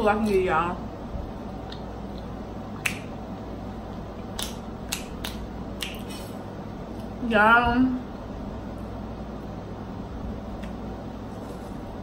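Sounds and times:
chewing mouth clicks and smacks: 1.6s - 3.1s, 4.3s - 6.3s.

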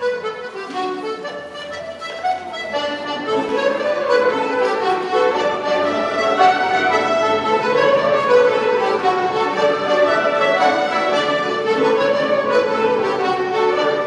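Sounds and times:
fiddles accordions and flutes playing jig: 0.0s - 14.0s.

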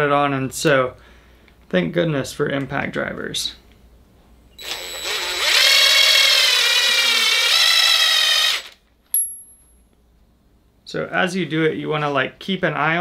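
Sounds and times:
cordless drill whining: 4.6s - 8.8s.

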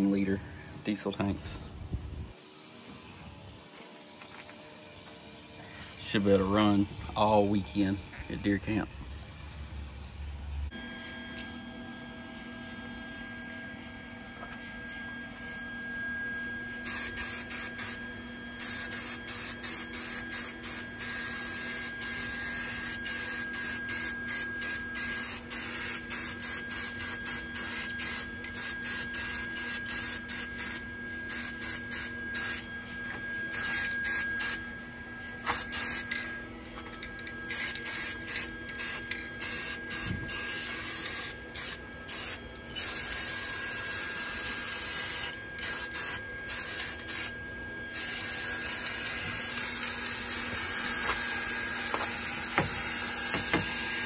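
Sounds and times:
spray-paint can hissing: 16.8s - 18.0s, 18.6s - 32.6s, 33.5s - 34.6s, 35.5s - 36.1s, 37.5s - 47.3s, 47.9s - 54.0s.

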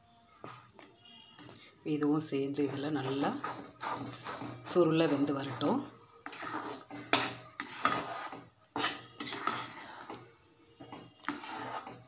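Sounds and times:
spoon scraping and knocking pan: 2.4s - 12.0s.

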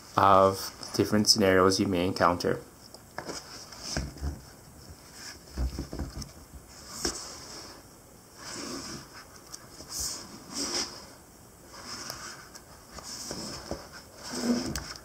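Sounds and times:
book pages rustling: 8.5s - 15.0s.

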